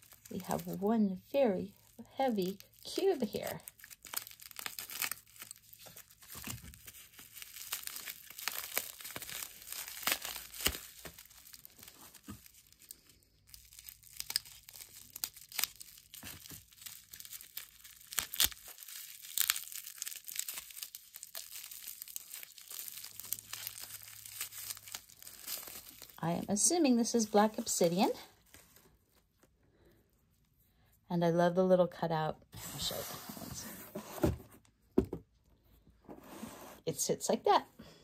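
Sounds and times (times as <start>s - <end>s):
bubble wrap crinkling: 0.0s - 29.6s.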